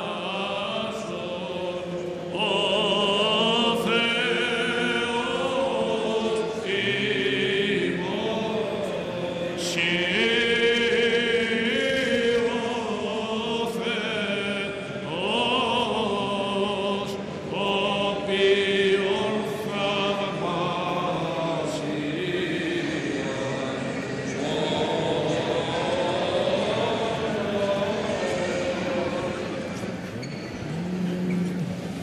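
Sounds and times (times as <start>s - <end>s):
men chanting slowly: 0.0s - 29.9s.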